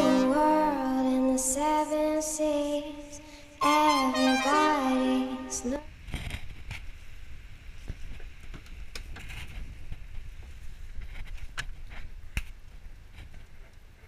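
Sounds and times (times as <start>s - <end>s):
woman singing slow melody: 0.0s - 5.9s.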